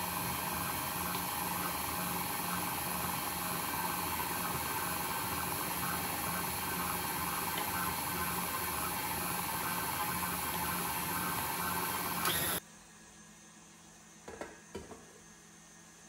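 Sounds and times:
stand mixer motor running: 0.0 - 12.6.

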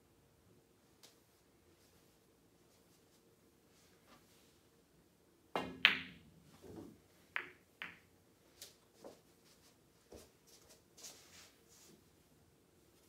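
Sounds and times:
cue striking ball: 5.6 - 6.3, 7.4 - 8.0
pool balls clicking: 5.6 - 8.1.

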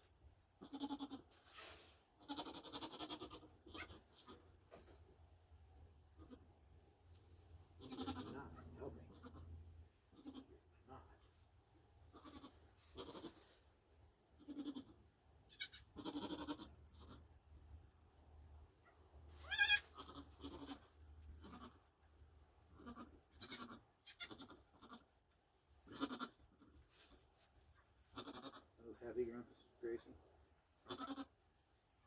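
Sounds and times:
goat bleating: 0.6 - 1.3, 2.2 - 4.4, 6.1 - 6.5, 7.8 - 9.5, 10.1 - 10.6, 12.1 - 13.6, 14.4 - 17.3, 19.4 - 21.9, 22.7 - 25.1, 25.8 - 27.1, 28.1 - 28.8, 30.8 - 31.4.

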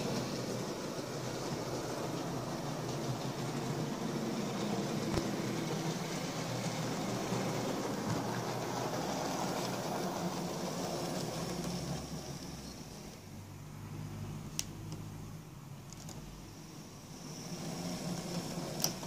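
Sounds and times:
model train motor hum: 0.0 - 13.2, 16.5 - 19.0
wheels rumbling on rails: 0.0 - 13.2, 17.1 - 19.0.

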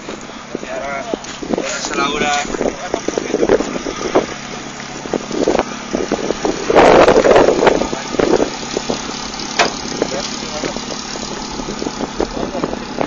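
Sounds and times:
engines idling: 0.0 - 13.0.

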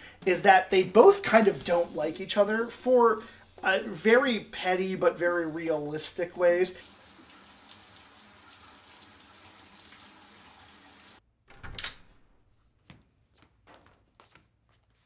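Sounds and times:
shower water running: 0.7 - 11.2.

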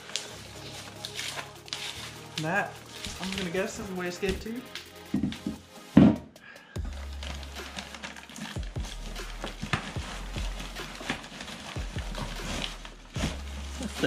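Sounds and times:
packing peanuts rustling and squeaking: 0.0 - 5.4, 7.0 - 14.0.

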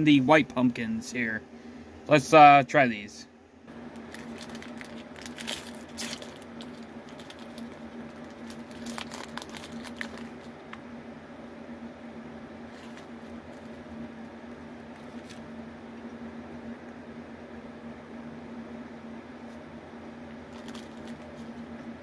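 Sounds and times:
steady low hum: 0.0 - 22.0
plastic wrapper crinkling and tearing: 3.9 - 10.6, 14.9 - 15.5, 20.5 - 21.6.

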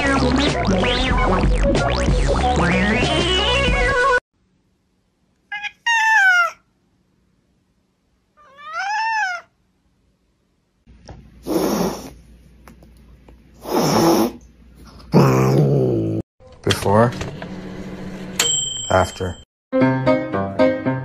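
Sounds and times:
cat giving harsh cries: 5.5 - 6.6, 8.4 - 9.5
cat meowing: 5.5 - 6.6, 8.4 - 9.5.

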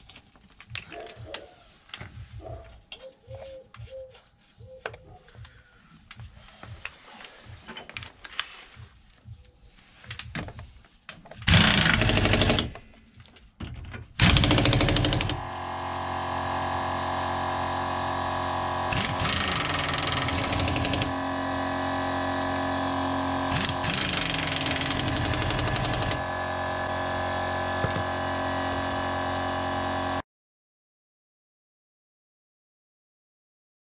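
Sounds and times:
pneumatic impact wrench hammering: 11.4 - 12.8, 14.1 - 30.2.

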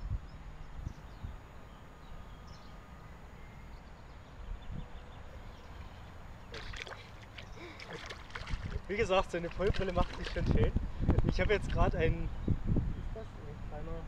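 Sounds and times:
wind rumble on microphone: 0.0 - 2.8, 3.8 - 14.0
faint bird chirps: 0.2 - 8.2.

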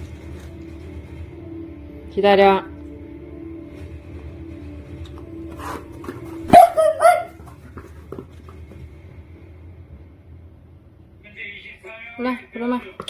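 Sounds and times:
dog barking: 6.4 - 7.6.

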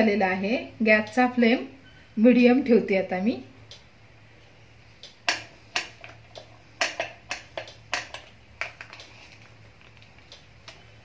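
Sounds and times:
hot oil crackling: 5.1 - 10.8.

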